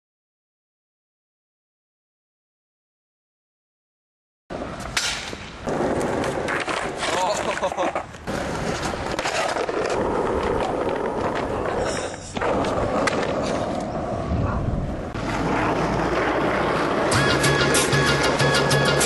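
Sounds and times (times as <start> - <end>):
skateboard clacking on ground: 4.5 - 14.3
skateboard wheels rolling on pavement: 4.5 - 19.0
music with steady beat: 17.1 - 19.0.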